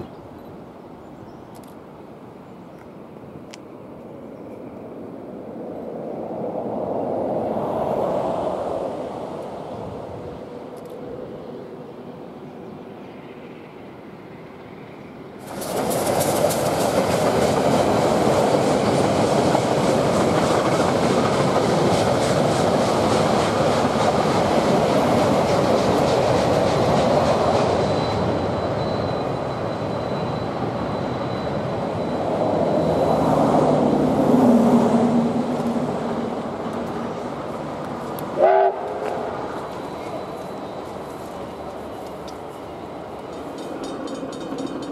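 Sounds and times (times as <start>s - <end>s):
diesel locomotive drone: 0.0s - 44.9s
wheels clattering on rails: 15.4s - 34.4s, 36.5s - 44.9s
steam locomotive exhaust: 38.1s - 44.9s.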